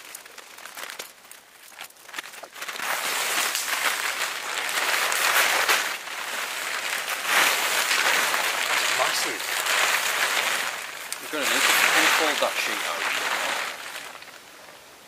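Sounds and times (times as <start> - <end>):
tent fabric rustling: 0.0 - 15.0.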